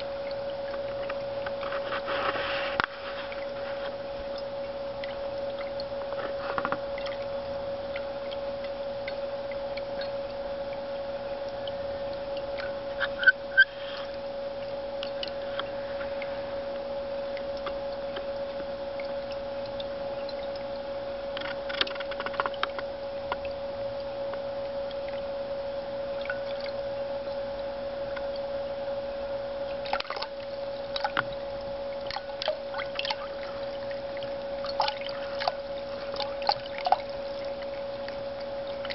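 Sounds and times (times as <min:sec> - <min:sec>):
pump hum: 0:00.0 - 0:38.9
water splashing into basin: 0:32.1 - 0:33.3, 0:34.6 - 0:37.4
cat lapping water: 0:34.6 - 0:37.1.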